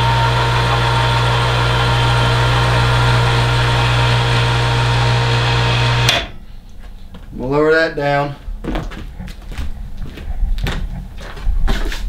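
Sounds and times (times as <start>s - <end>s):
electric winch humming: 0.0s - 6.4s.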